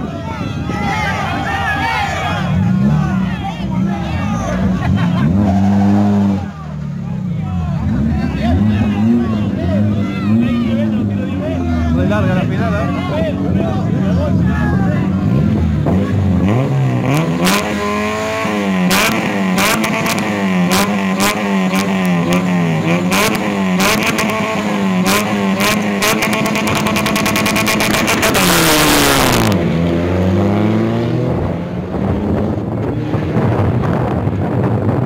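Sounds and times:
car engine revving hard: 0:04.4 - 0:06.5, 0:15.1 - 0:34.2.

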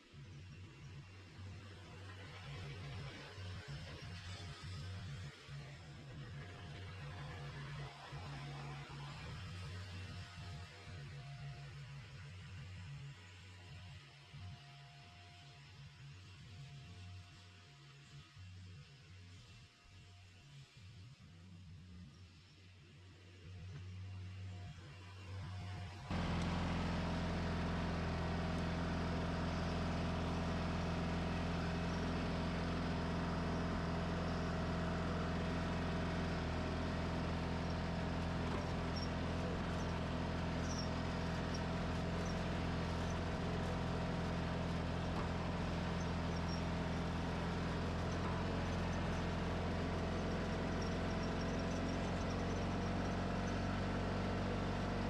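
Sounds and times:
tractor engine running: 0:26.1 - 0:55.0.

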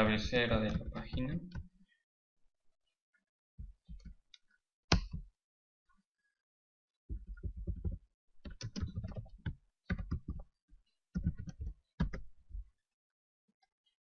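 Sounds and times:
computer keyboard typing: 0:07.2 - 0:09.3, 0:09.9 - 0:10.4, 0:11.2 - 0:12.2.

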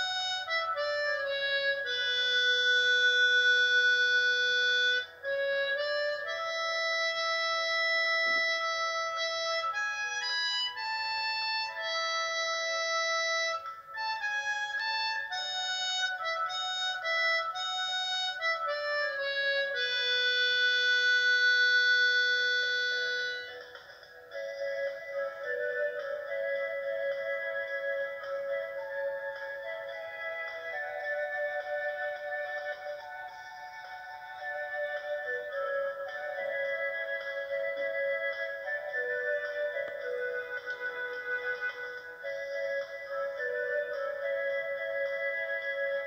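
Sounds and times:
harmonica playing slow melody: 0:00.0 - 0:44.3.

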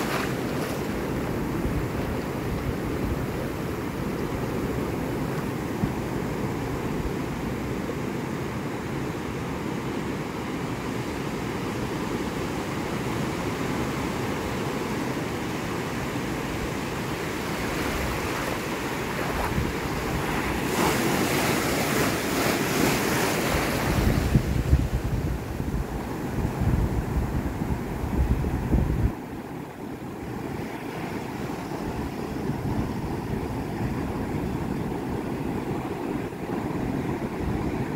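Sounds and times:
surf breaking on beach: 0:00.0 - 0:06.1, 0:16.6 - 0:29.2
wind buffeting microphone: 0:17.3 - 0:29.4.

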